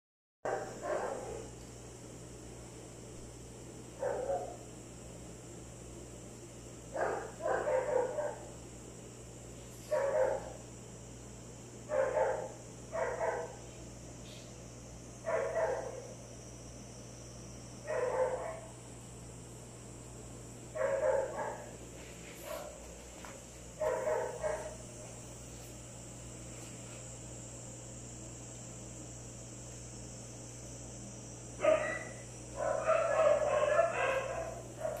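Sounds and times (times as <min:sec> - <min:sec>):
dog barking: 0:00.5 - 0:01.5, 0:04.0 - 0:04.6, 0:06.9 - 0:08.5, 0:09.9 - 0:10.6, 0:11.9 - 0:13.6, 0:15.2 - 0:16.1, 0:17.9 - 0:18.7, 0:20.8 - 0:21.8, 0:22.4 - 0:22.8, 0:23.8 - 0:24.8, 0:31.6 - 0:35.0.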